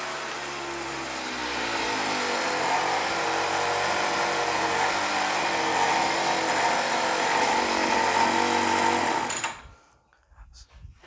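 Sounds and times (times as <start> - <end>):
brush cutter engine running: 0.0 - 9.6.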